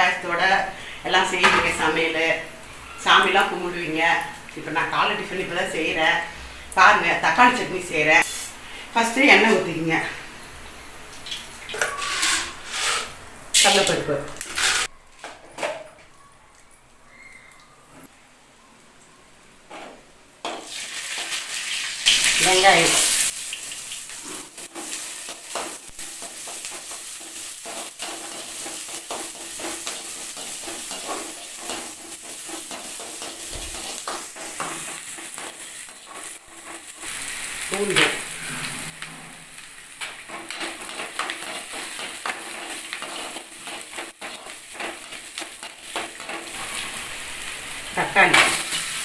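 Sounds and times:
food sizzling in oil: 0.0 - 14.9, 20.4 - 49.0
metal spoon scraping pan: 11.7 - 14.9.

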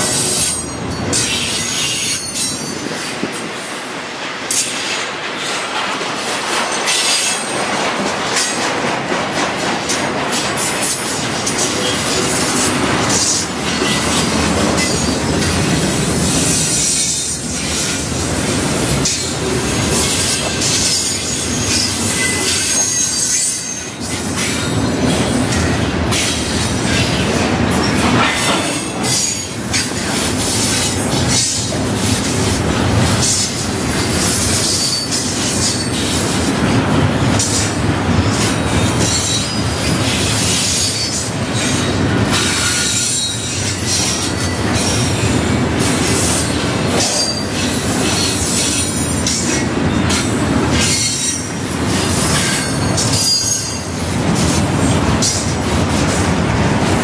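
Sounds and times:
train cars rumbling past: 0.0 - 57.0
high-pitched wheel squeals: 21.3 - 24.2, 52.5 - 53.8.

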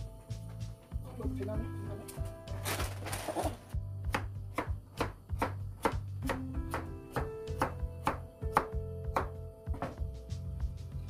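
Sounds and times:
background music: 0.0 - 11.0
knife chopping radish on board: 4.1 - 10.0.

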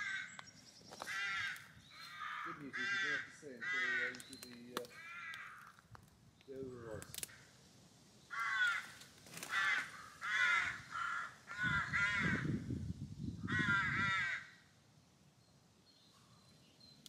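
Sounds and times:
crow cawing: 0.0 - 0.4, 1.0 - 6.0, 8.3 - 12.6, 13.4 - 14.7.

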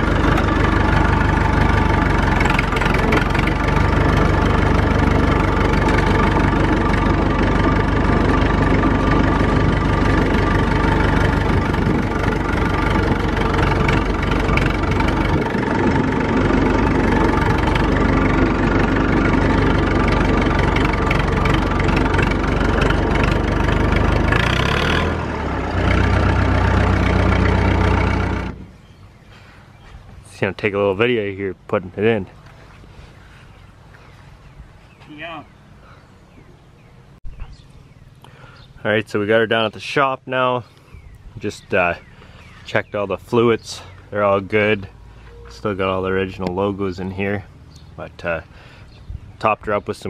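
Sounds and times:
tractor engine running: 0.0 - 29.3, 40.8 - 48.7.

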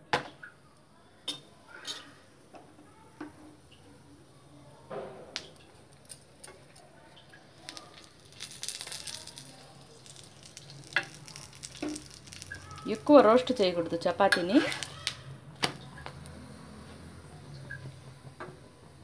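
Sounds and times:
sizzling: 5.3 - 19.0.

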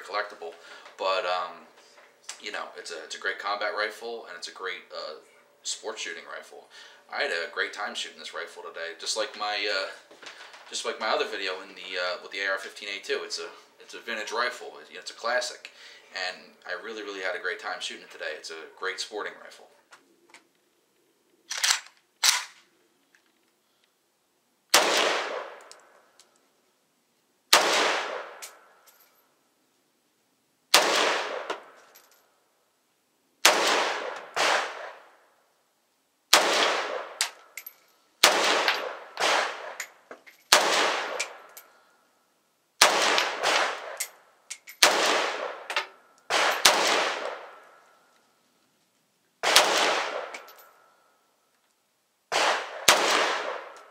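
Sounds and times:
rifle gunshots echoing: 24.7 - 25.7, 27.5 - 28.7, 30.7 - 31.8, 33.4 - 35.1, 36.3 - 37.4, 38.2 - 39.8, 40.5 - 41.5, 42.8 - 44.0, 44.8 - 47.8, 49.4 - 50.6, 52.3 - 53.9.

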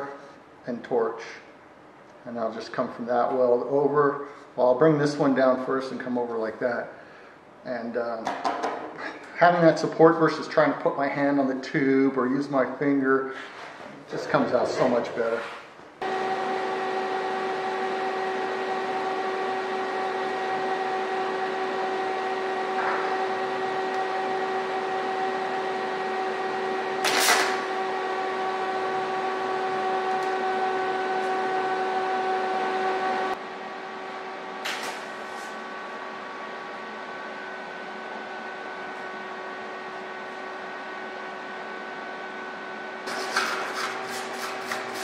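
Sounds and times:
welder electrical hum: 0.0 - 45.0.

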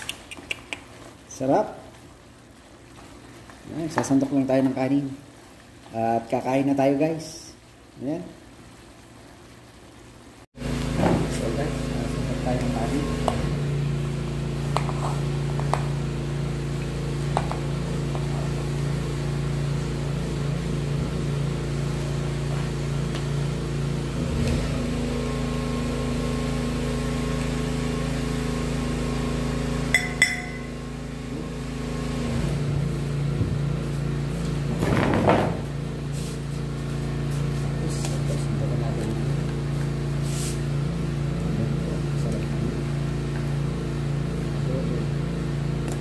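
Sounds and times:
steady machine hum: 9.8 - 46.0
sharp clink with ring: 30.0 - 30.7.

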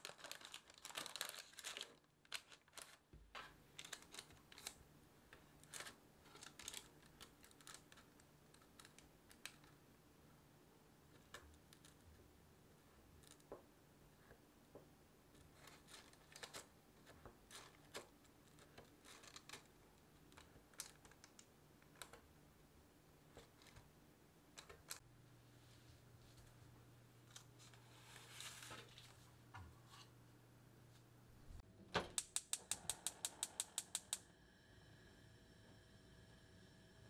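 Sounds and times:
faint low hum: 0.1 - 32.0.

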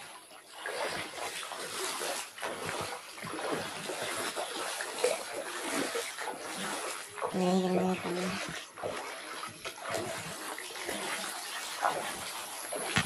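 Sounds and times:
floodwater rushing and splashing: 0.0 - 13.0
person's voice: 7.4 - 8.5.

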